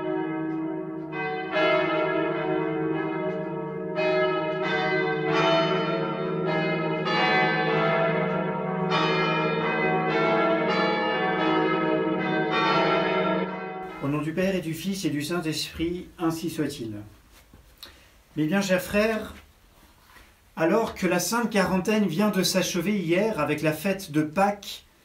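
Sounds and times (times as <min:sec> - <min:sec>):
church bells pealing: 0:00.0 - 0:16.8.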